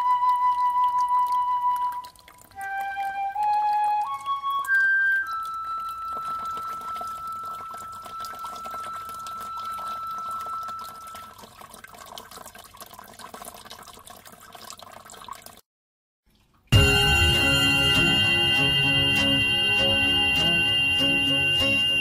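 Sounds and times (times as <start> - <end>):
flute note: 0.0 - 10.8, 16.8 - 22.0
water trickling and dripping: 0.0 - 15.7.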